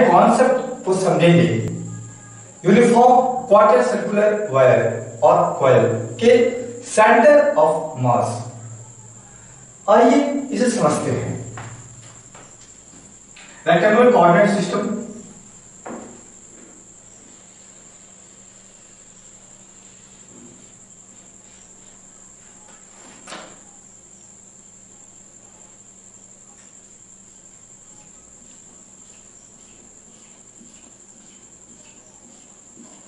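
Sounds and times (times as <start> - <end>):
steady high-pitched tone: 0.0 - 11.6
marker strokes on a whiteboard: 15.9 - 23.2, 27.2 - 33.0.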